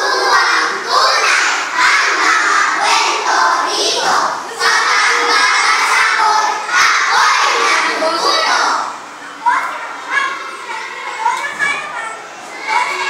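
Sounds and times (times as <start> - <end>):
children chanting in unison: 0.0 - 9.0.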